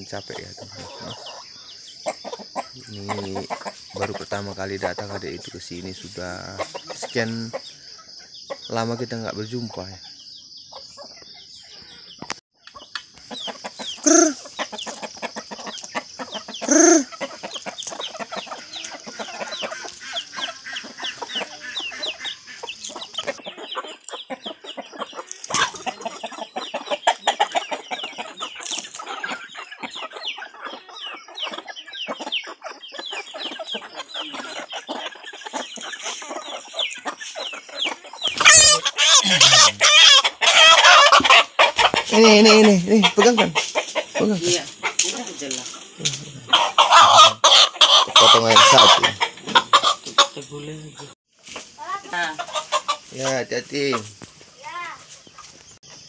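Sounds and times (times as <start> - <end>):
chickens clucking: 0.0 - 56.0
chicken squawking loudly: 14.0 - 14.7, 16.6 - 22.7, 25.2 - 29.5, 37.9 - 45.0, 46.3 - 50.4.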